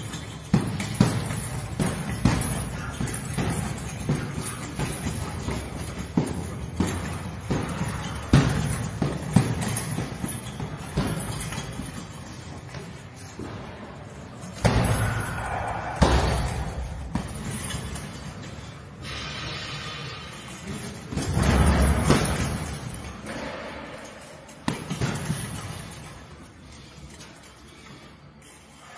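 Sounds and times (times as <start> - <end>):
punches thudding on punching bag: 0.0 - 13.8, 14.5 - 18.4, 20.7 - 24.0, 24.6 - 26.0.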